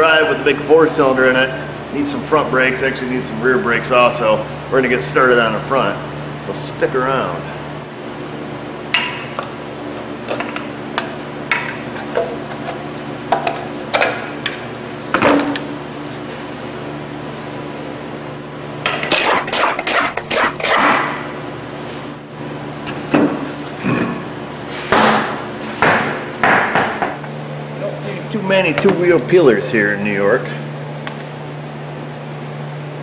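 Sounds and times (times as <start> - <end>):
steady low hum: 0.0 - 33.0.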